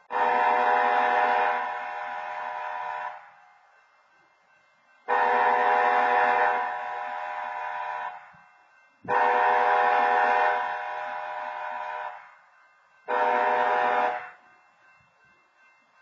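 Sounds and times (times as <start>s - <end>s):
diesel locomotive horn blasts: 0.0s - 3.4s, 5.1s - 8.4s, 9.0s - 12.3s, 13.1s - 14.4s.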